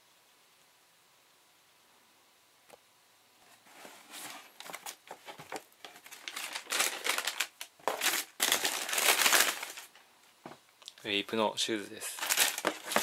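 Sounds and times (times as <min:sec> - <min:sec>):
tissue paper crinkling: 0:04.0 - 0:10.0, 0:12.0 - 0:13.0
cardboard box opening: 0:12.2 - 0:13.0.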